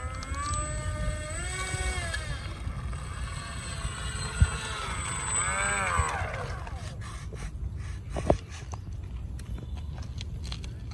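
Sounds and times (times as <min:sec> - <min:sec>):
electric motor revving: 0:00.0 - 0:07.3
thin high whine: 0:00.0 - 0:07.6.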